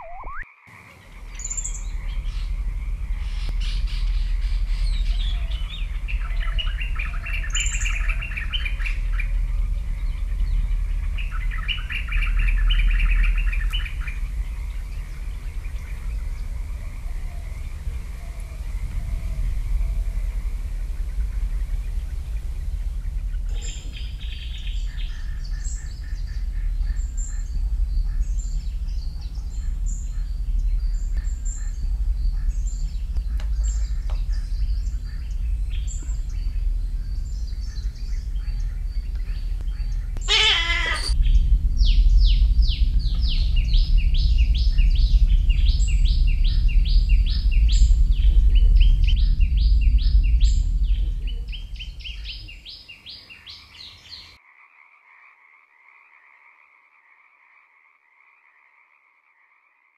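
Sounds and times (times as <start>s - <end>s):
loud wavering bird call: 0.0s - 2.0s, 39.8s - 41.2s
birds chirping: 0.0s - 54.4s
low steady rumble: 1.0s - 52.9s.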